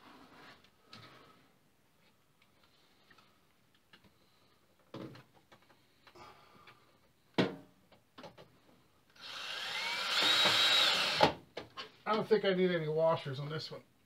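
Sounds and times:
cordless drill driving a screw: 0:09.2 - 0:11.4.

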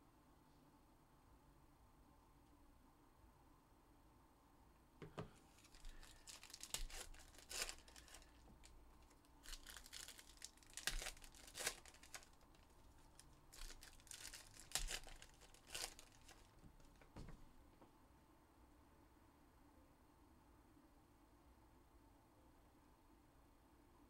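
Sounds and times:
card pack wrappers tearing and crinkling: 0:05.5 - 0:17.0.

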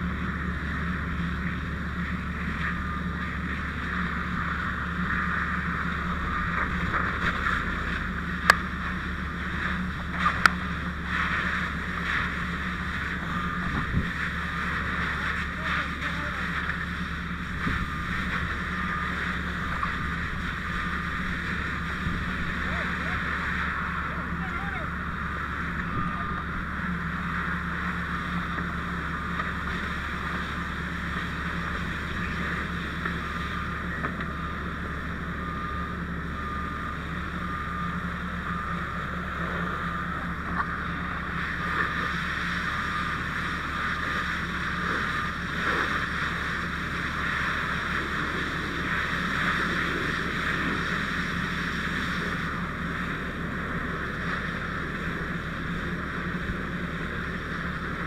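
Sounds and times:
low steady drone: 0:00.0 - 0:58.0
hose water spraying on car: 0:07.1 - 0:25.7.

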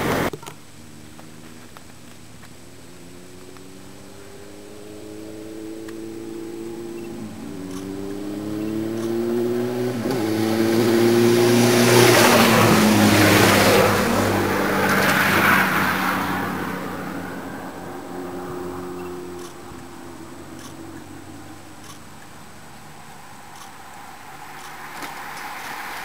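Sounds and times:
motorcycle engine passing by: 0:00.0 - 0:26.0.

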